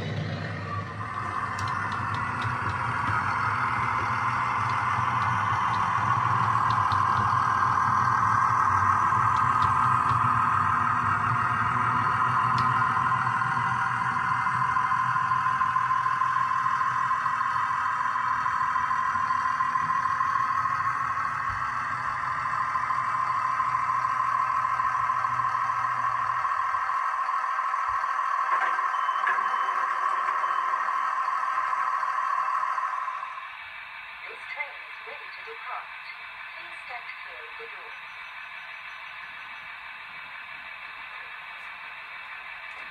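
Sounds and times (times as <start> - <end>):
wheel rumble: 0.0 - 32.0
model train motor hum: 0.0 - 42.9.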